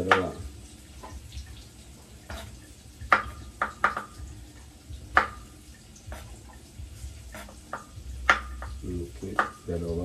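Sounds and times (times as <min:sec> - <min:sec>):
knife tapping chopping board: 0:02.3 - 0:04.2, 0:05.1 - 0:05.4, 0:07.4 - 0:09.6.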